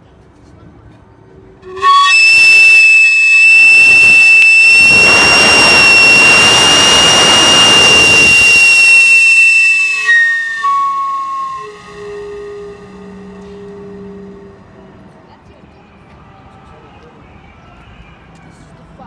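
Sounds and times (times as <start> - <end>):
shrill steam whistle: 1.6 - 15.2
steam hissing: 1.7 - 14.7.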